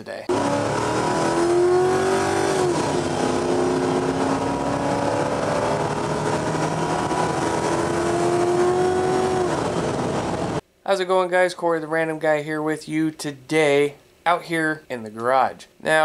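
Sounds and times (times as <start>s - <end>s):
car engine accelerating: 0.3s - 10.6s
road noise: 0.3s - 10.6s.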